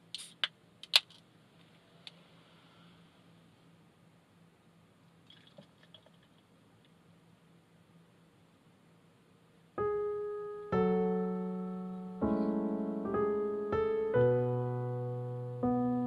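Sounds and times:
slow piano chords: 9.8 - 16.0.

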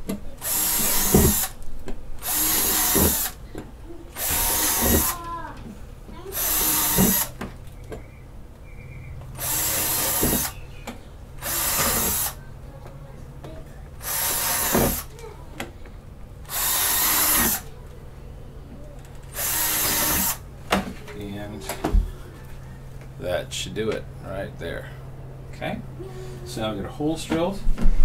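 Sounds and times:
cordless drill boring plastic: 0.4 - 1.6, 2.2 - 3.4, 4.2 - 5.2, 6.3 - 7.4, 9.4 - 10.6, 11.4 - 12.4, 14.0 - 15.1, 16.5 - 17.6, 19.3 - 20.4.

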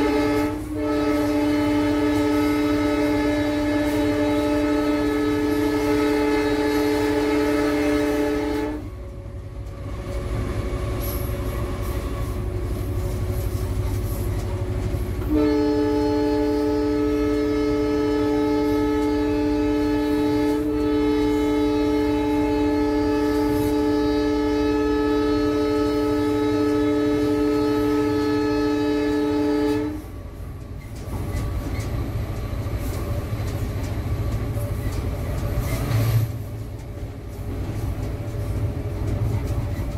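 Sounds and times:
locomotive air horn blasts: 0.0 - 8.9, 15.2 - 30.1
locomotive running rumble: 0.0 - 39.9.

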